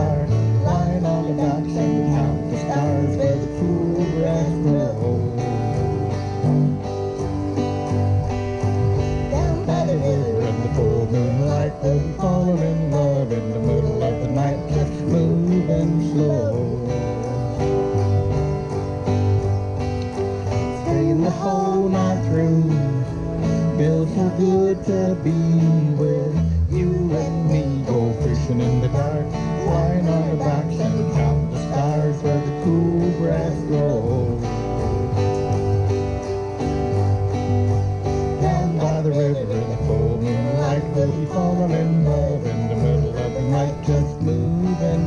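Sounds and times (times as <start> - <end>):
acoustic guitars: 0.0 - 45.0
picked lead melody: 0.0 - 45.0
steady bass: 0.0 - 45.0.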